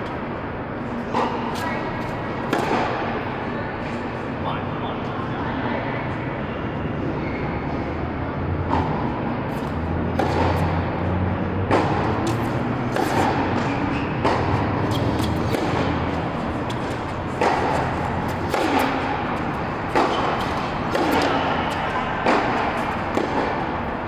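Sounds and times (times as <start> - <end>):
steady low hum: 0.0 - 24.0
tennis ball hits echoing: 2.4 - 3.2, 8.6 - 24.0.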